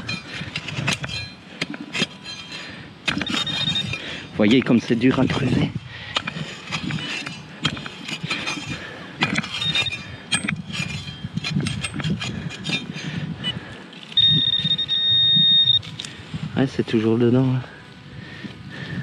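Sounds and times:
shovel scraping into hard soil: 0.0s - 14.3s
high electronic beep: 14.2s - 15.9s.

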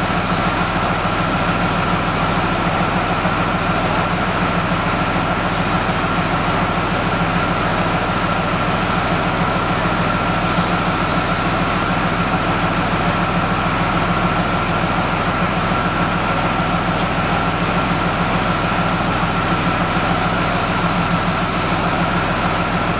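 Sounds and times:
tank diesel engine idling: 0.0s - 22.9s.

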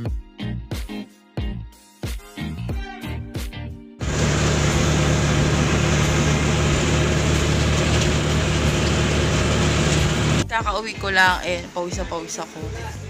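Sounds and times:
engine drone inside vehicle: 4.0s - 10.4s
road noise: 4.0s - 10.4s.

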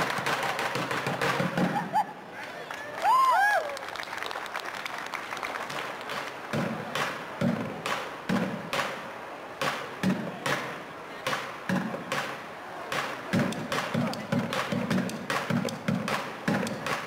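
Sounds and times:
drumsticks striking plastic buckets: 0.0s - 1.8s, 9.6s - 17.0s.

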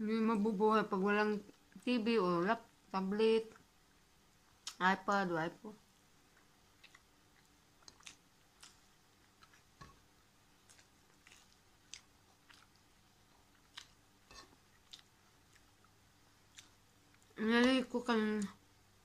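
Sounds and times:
person chewing with mouth clicks: 6.3s - 10.0s, 10.6s - 17.8s.

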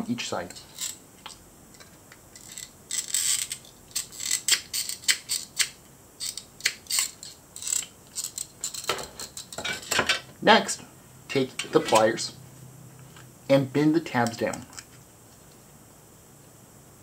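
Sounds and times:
tin snips cutting metal: 2.4s - 9.8s.

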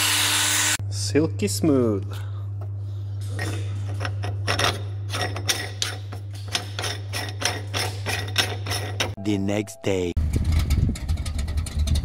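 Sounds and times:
steady low hum: 0.8s - 12.0s
metallic clicks and scrapes: 3.2s - 9.2s, 10.3s - 12.0s.

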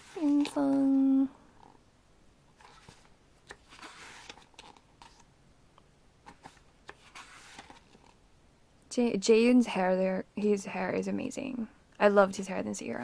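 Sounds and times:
paper pages rustling: 0.0s - 1.0s, 2.6s - 5.3s, 6.2s - 8.2s.

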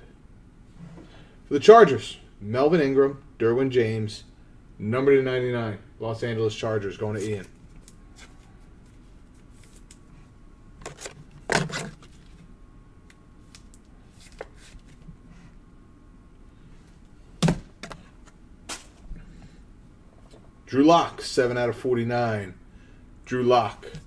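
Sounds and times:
card rustling: 7.1s - 10.1s, 10.8s - 12.5s, 13.4s - 15.1s.

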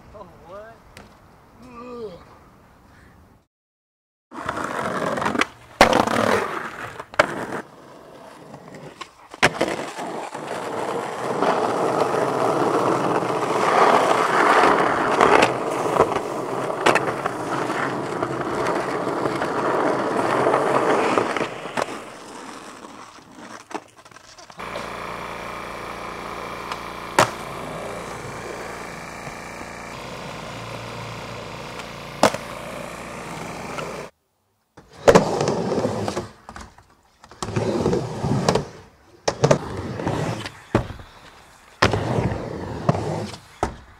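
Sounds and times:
skateboard wheels rolling on pavement: 4.3s - 43.9s
skateboard clacking on landing: 9.0s - 34.1s
steady hum: 24.6s - 34.1s.

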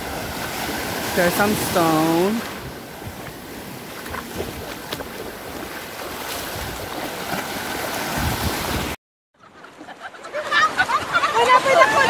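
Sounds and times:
surf washing over sand: 0.0s - 9.0s.

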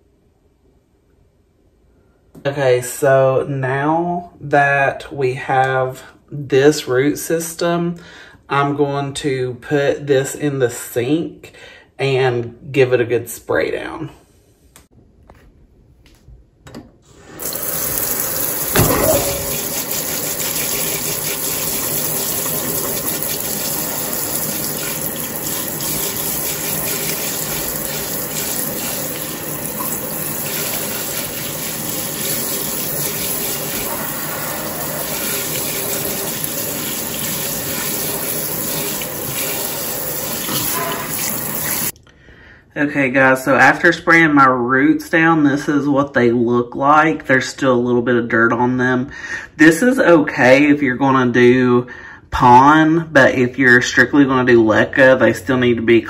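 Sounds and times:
faucet spray into sink: 17.2s - 41.9s.

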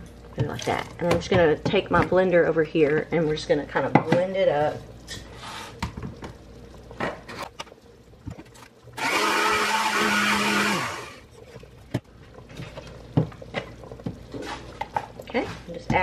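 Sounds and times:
blender running: 9.0s - 11.2s.

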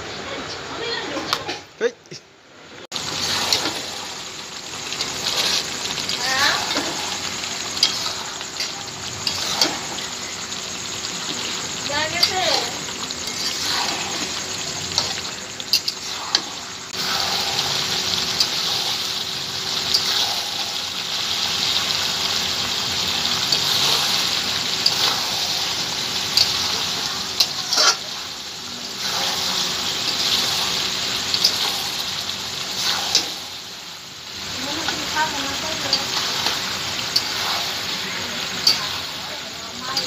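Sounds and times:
curry sizzling in a wok: 2.6s - 40.0s
metal spatula scraping a pan: 3.0s - 4.2s, 4.9s - 10.2s, 11.3s - 19.0s, 27.3s - 28.3s, 35.8s - 39.2s.

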